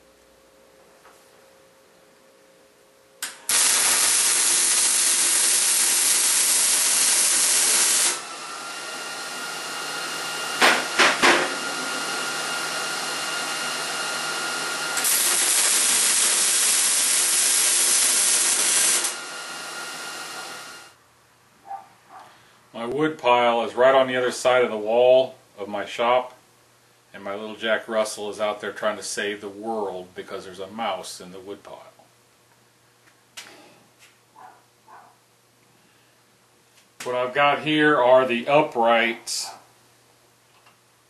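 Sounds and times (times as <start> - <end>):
arc welding hiss: 3.2 - 8.4, 14.6 - 20.9.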